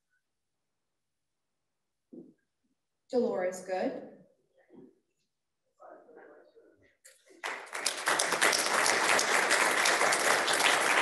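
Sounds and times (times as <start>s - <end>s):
audience applauding: 7.3s - 11.0s.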